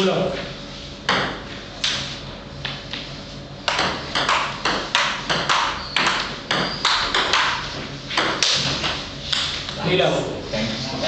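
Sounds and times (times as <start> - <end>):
table tennis ball hits: 3.6 - 9.5.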